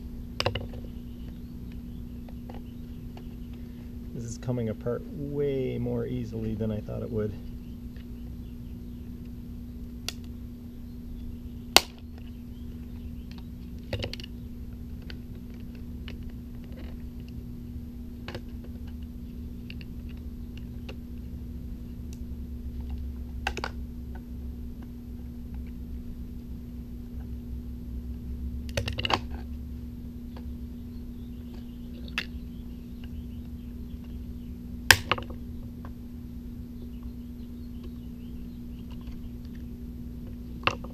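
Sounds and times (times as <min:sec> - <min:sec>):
steady low hum: 0:00.0 - 0:40.9.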